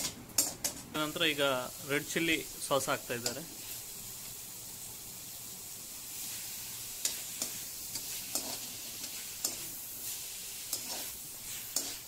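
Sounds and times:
vegetables sizzling in oil: 0.0s - 12.0s
metal spatula scraping pan: 7.0s - 12.0s.

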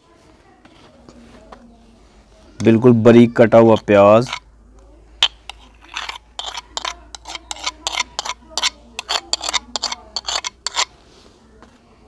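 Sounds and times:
metal spoon scraping clay bowl: 3.4s - 4.5s, 5.2s - 11.0s.

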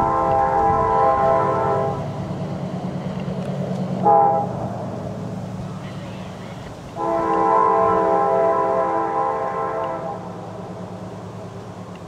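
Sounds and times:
locomotive air horn: 0.0s - 2.1s, 4.0s - 4.7s, 6.9s - 10.4s
diesel locomotive engine rumble: 0.0s - 12.0s.

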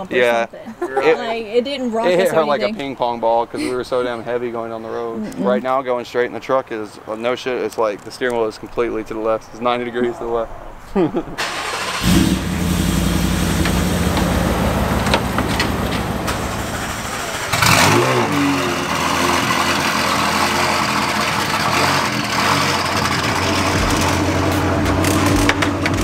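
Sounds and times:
car engine idling: 11.4s - 26.0s
engine starting with a rev: 11.4s - 26.0s.

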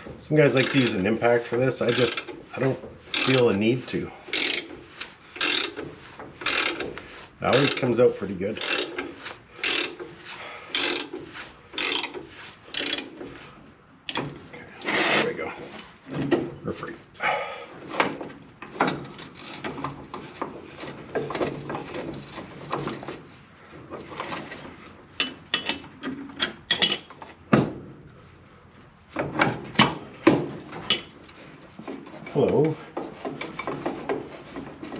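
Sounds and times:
ratchet wrench clicking: 0.6s - 1.0s, 1.9s - 2.3s, 3.1s - 3.5s, 4.3s - 4.7s, 5.4s - 5.8s, 6.4s - 6.8s, 7.5s - 7.8s, 8.6s - 9.0s, 9.6s - 10.0s, 10.7s - 11.2s, 11.8s - 13.2s.

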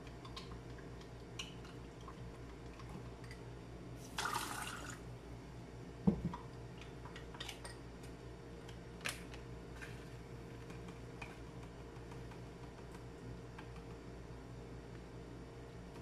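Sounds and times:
low steady hum: 0.0s - 16.0s
soft knock: 6.1s - 6.3s.

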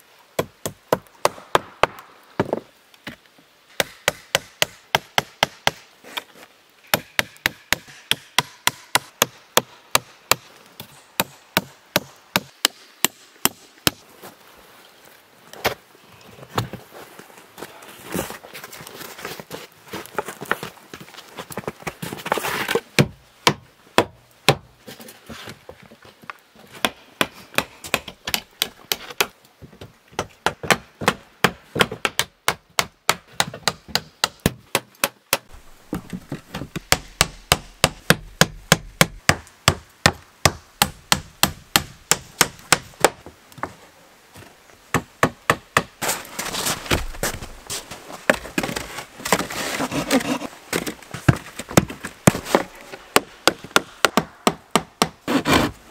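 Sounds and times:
boards scraping and rustling: 17.9s - 22.9s, 46.0s - 54.1s, 55.2s - 55.9s.

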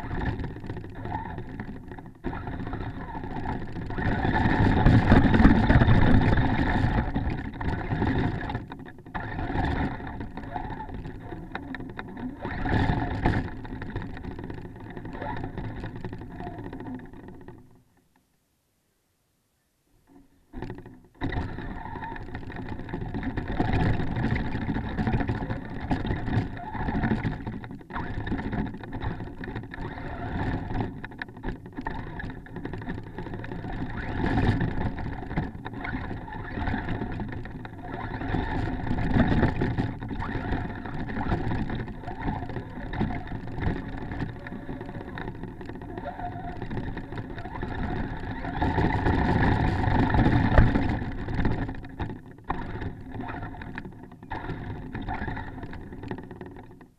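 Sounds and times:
rc truck electric motor: 0.0s - 17.5s, 20.6s - 56.4s.

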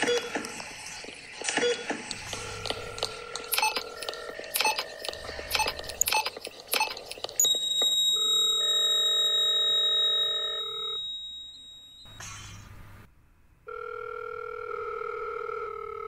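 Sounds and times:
electronic clicks and ticks: 1.4s - 8.1s
held electronic tones: 1.7s - 12.7s
high-pitched electronic beep: 3.6s - 10.3s.

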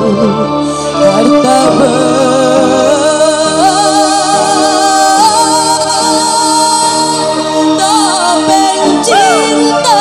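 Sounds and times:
musical accompaniment: 0.0s - 10.0s
man singing into a microphone: 1.0s - 5.3s.

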